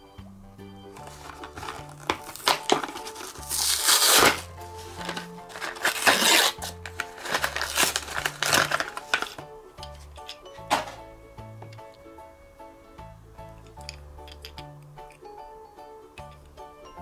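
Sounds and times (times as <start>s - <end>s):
background music: 0.0s - 17.0s
packaging crinkling and tearing: 1.0s - 9.5s.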